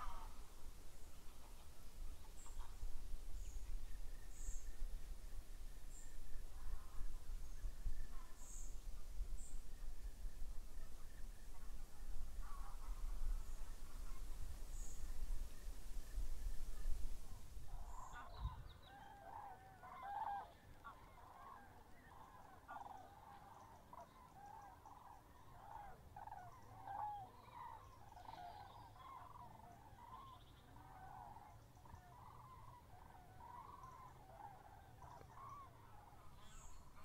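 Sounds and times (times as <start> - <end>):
waterfowl honking: 0.0 - 0.4.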